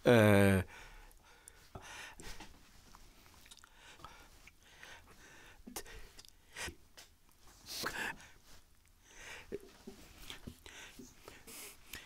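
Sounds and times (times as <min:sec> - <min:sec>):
man breathing: 0:00.7 - 0:02.6, 0:03.6 - 0:06.9, 0:07.6 - 0:12.0.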